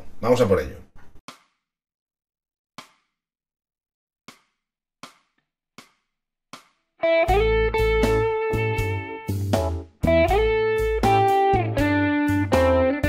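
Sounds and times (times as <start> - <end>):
electric guitar solo: 7.0 - 9.4, 10.0 - 13.0
blues backing track with drums: 7.0 - 13.0.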